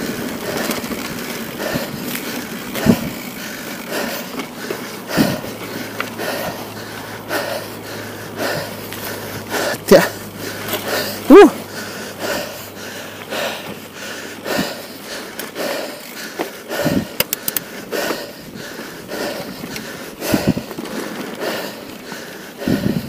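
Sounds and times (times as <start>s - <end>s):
tyres crunching on loose stones: 0.0s - 7.3s, 20.5s - 22.1s
bike rattling: 0.0s - 23.0s
rider breathing hard: 0.0s - 23.0s
wind noise on microphone: 2.7s - 3.3s, 16.8s - 17.2s, 19.6s - 20.8s, 22.6s - 23.0s.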